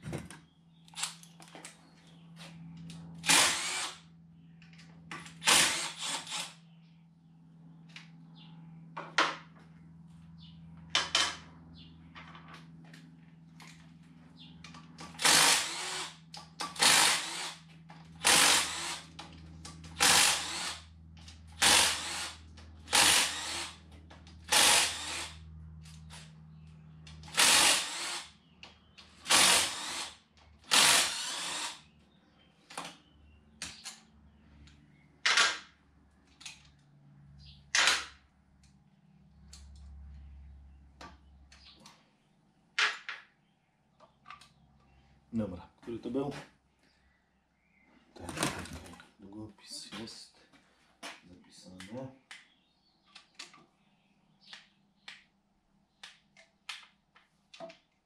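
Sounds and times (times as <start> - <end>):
power drill running: 3.2 - 4.0, 5.4 - 6.6, 15.1 - 19.1, 20.0 - 20.9, 21.5 - 23.8, 24.4 - 25.4, 27.2 - 28.3, 29.2 - 31.9.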